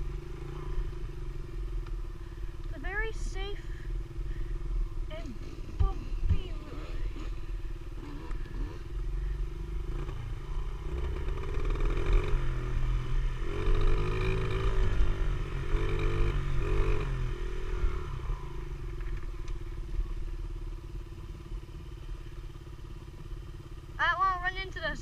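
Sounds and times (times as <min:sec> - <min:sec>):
dirt bike engine revving: 0:05.1 - 0:18.7.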